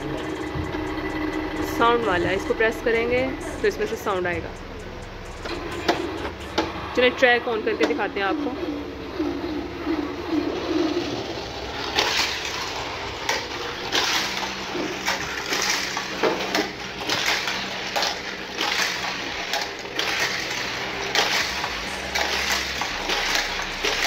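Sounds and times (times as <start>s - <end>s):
toy cars rattling on plastic track: 7.6s - 24.0s.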